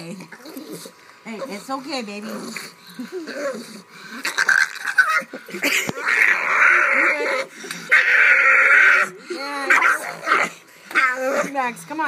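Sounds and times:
puppy squealing: 3.2s - 11.6s
puppy screaming: 3.5s - 11.6s.

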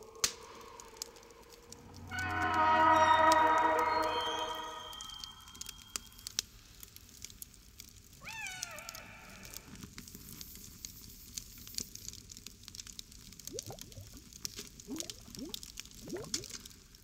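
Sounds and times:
crackling and popping: 0.0s - 3.1s, 3.9s - 17.0s
meow-like call: 2.1s - 5.7s, 8.2s - 9.7s.

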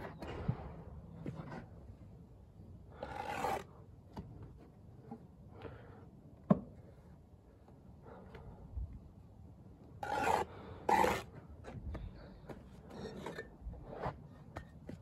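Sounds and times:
trowel scraping mortar: 3.0s - 3.7s, 10.0s - 11.3s.

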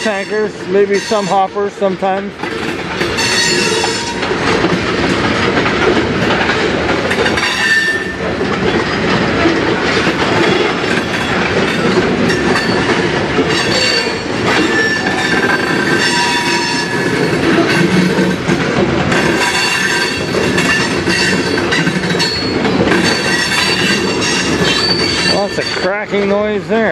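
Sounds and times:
train wheels rumbling and clacking: 0.0s - 26.9s
high-pitched wheel squeals: 3.2s - 4.2s, 7.4s - 8.2s, 13.5s - 17.8s, 19.4s - 25.9s.

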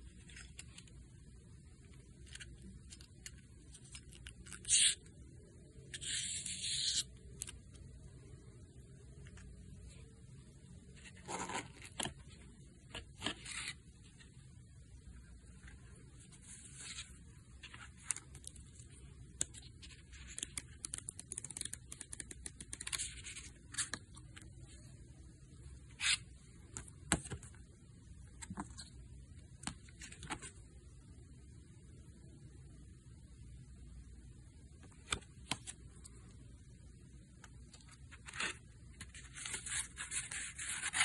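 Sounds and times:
page flips: 19.4s - 24.4s
paper rustling: 37.7s - 41.0s.

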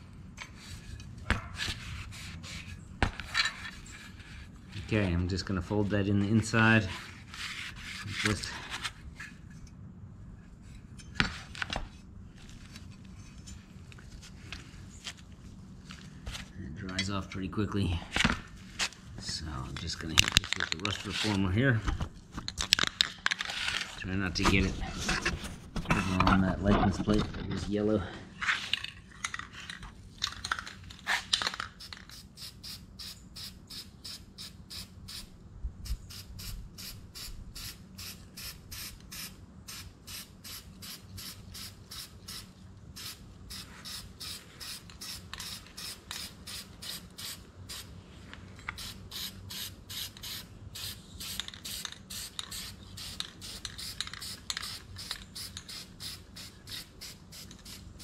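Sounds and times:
aerosol can spraying: 36.1s - 47.9s, 48.8s - 57.8s.

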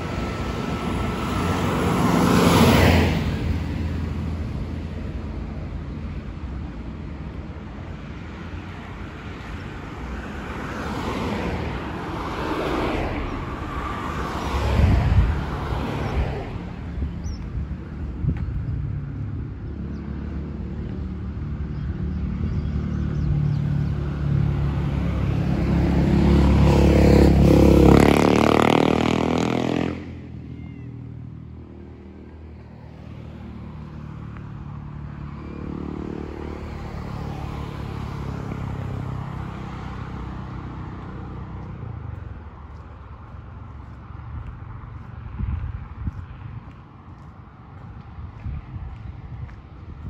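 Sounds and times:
low rumble of traffic: 0.0s - 50.0s
vehicle engine passing: 10.0s - 17.1s, 18.9s - 30.4s.

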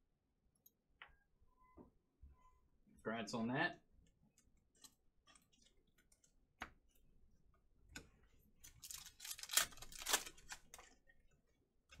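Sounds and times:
cards and foil packs rustling: 8.6s - 11.0s.

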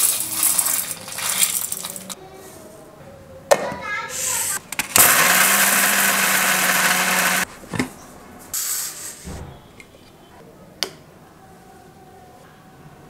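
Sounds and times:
mixer grinder grinding spices: 5.0s - 7.5s.

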